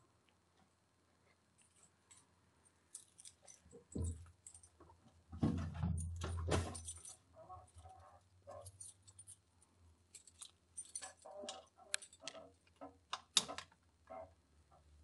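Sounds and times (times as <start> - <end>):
keys rattling and clicking: 1.6 - 4.8, 6.0 - 13.7.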